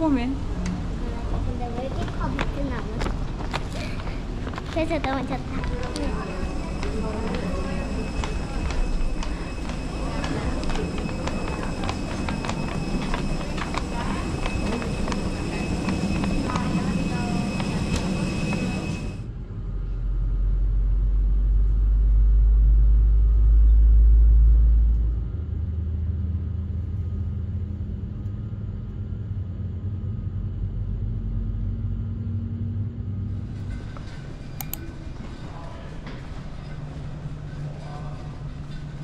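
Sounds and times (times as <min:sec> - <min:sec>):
room ambience: 0:00.0 - 0:19.4, 0:26.3 - 0:39.0
airliner cabin rumble: 0:00.0 - 0:25.4
faint humming tones: 0:00.0 - 0:39.0.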